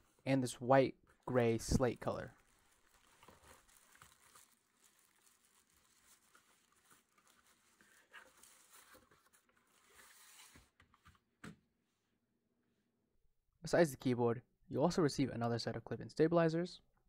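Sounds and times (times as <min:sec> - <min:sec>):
plastic wrap crinkling: 0:01.2 - 0:09.9.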